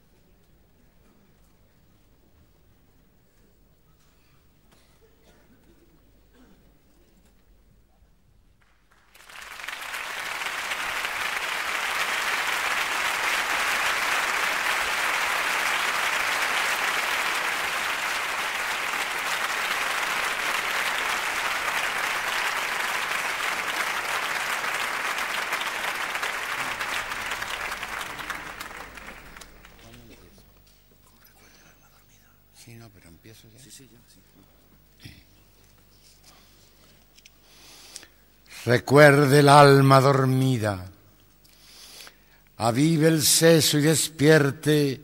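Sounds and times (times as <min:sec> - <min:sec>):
audience applauding: 0:08.6 - 0:30.6.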